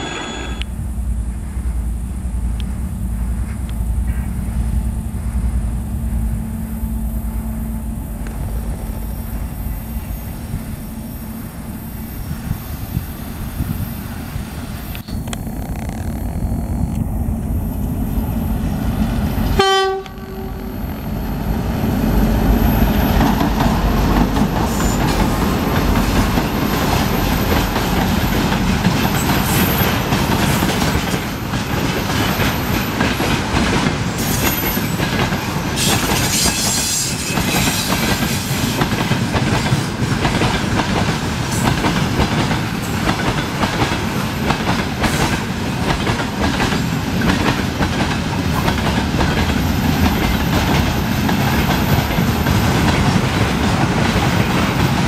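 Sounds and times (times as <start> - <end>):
locomotive horn blast: 19.5 - 20.8
train wheels clattering over rails: 22.8 - 55.0.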